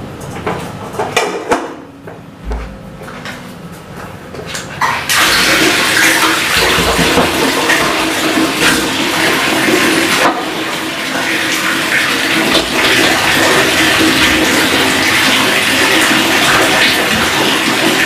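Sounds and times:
tap running into plastic basin: 5.1 - 18.0.

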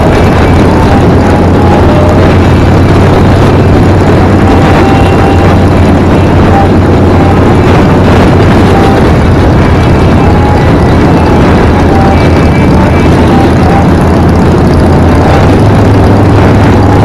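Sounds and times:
motorcycle engine running: 0.0 - 17.0
wind rushing over microphone: 0.0 - 17.0.

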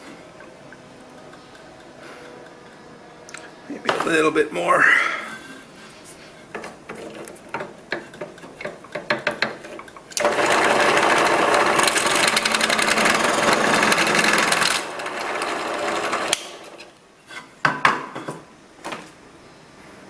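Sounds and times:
drill press boring into wood: 10.2 - 16.8.

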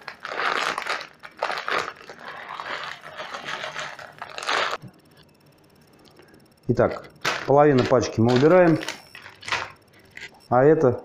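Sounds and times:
plastic bag crinkling: 0.0 - 4.8, 6.9 - 10.3.

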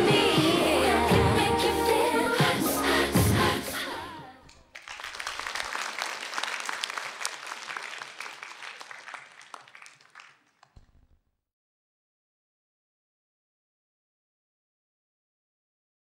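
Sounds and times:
dance music: 0.0 - 4.4
audience applauding: 4.5 - 11.0.

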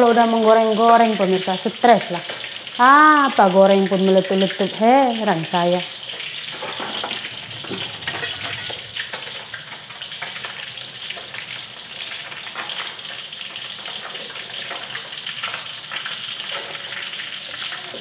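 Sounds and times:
fish sizzling in oil: 0.0 - 18.0.

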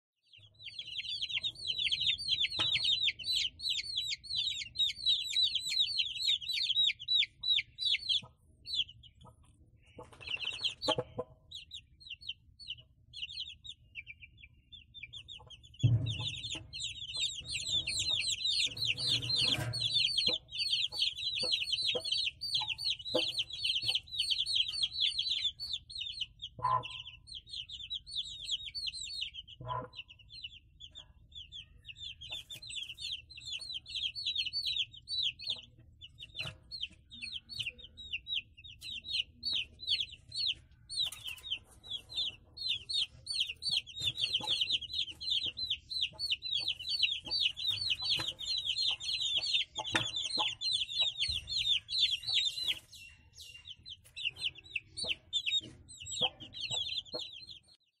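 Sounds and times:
chicks peeping: 0.3 - 58.0.

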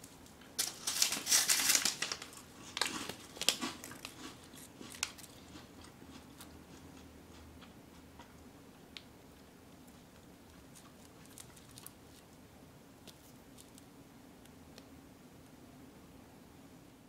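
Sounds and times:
snacks and plastic wrappers crinkling: 0.0 - 8.4, 9.8 - 12.4, 13.0 - 14.5
low steady hum: 0.0 - 17.0.

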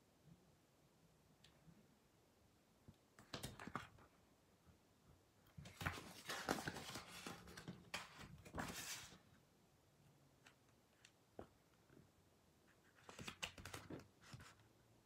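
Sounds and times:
paper pages rustling: 5.5 - 9.2, 12.9 - 14.6.

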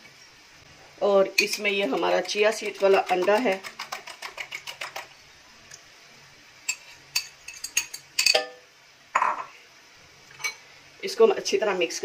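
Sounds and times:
utensil clinking glass bowl: 6.7 - 8.6.

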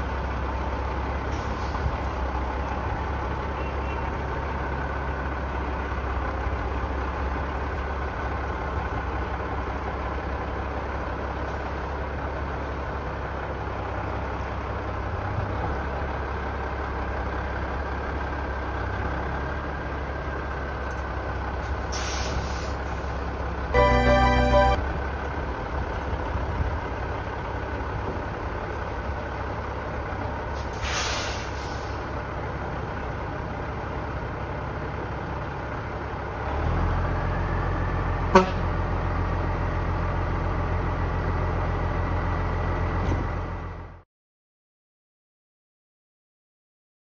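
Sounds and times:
diesel truck engine rumbling: 0.0 - 44.0
short air hiss: 21.9 - 22.8, 30.7 - 32.0.

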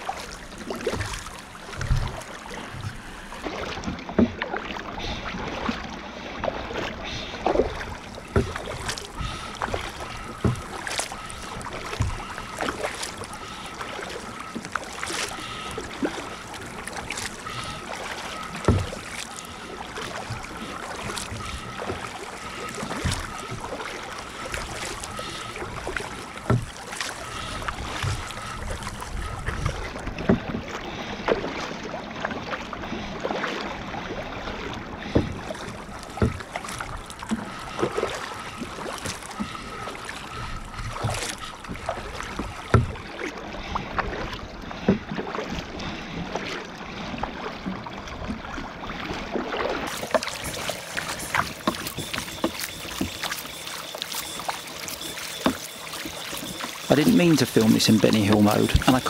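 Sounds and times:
paddle splashes: 0.0 - 59.0
water slapping hull: 0.0 - 59.0.

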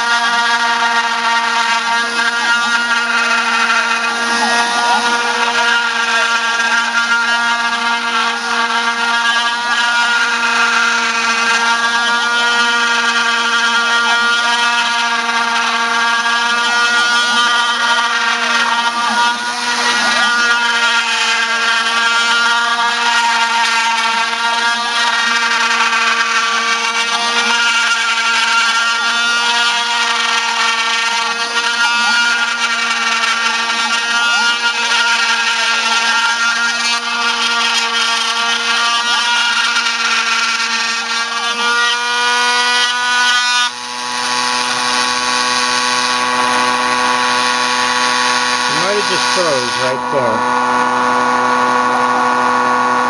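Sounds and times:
rotary tool spindle whine: 0.0 - 53.0
stepper motors gliding tones: 48.4 - 53.0.

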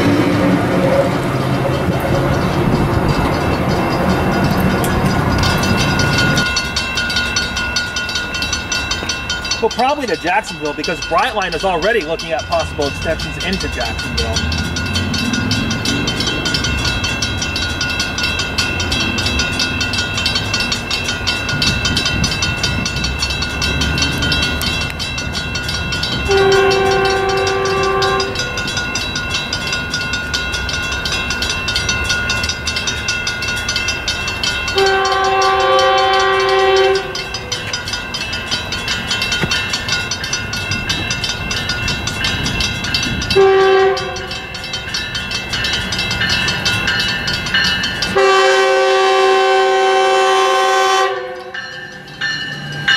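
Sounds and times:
crossing bells ringing: 0.0 - 52.9
train horn blasts: 26.2 - 28.6, 34.8 - 37.3, 43.3 - 44.4, 48.2 - 51.6.

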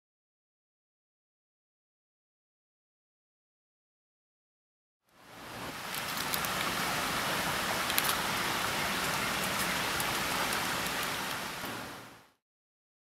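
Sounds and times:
creek rushing over rocks: 5.2 - 12.3.

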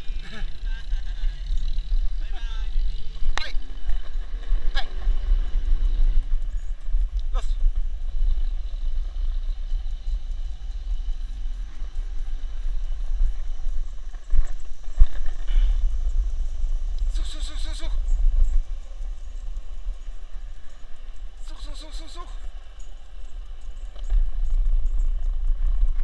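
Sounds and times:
skateboard wheels rolling on asphalt: 0.0 - 17.0, 22.4 - 26.0.

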